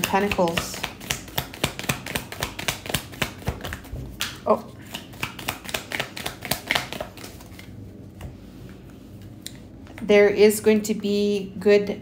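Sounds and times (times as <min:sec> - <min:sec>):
cards being shuffled: 0:00.0 - 0:07.8.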